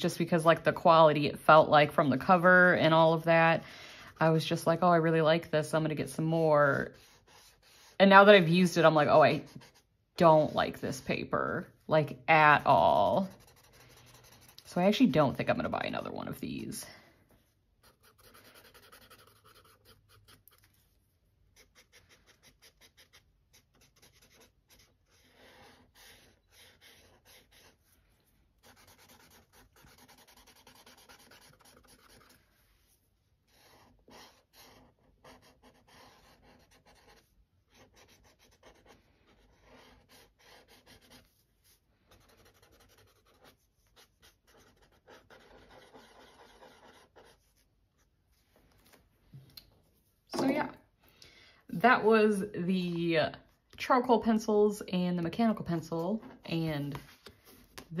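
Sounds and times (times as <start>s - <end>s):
pencil scratching on paper: 4.1s - 16.8s, 17.8s - 20.9s, 21.5s - 48.1s.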